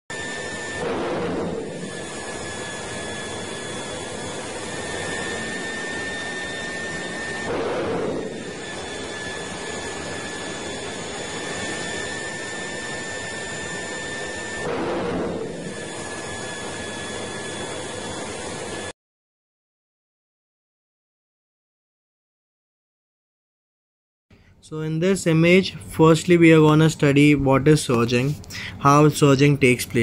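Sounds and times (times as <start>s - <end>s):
turbocharger whine: 0.1s - 18.9s
turbocharger surge whoosh: 0.2s - 18.3s.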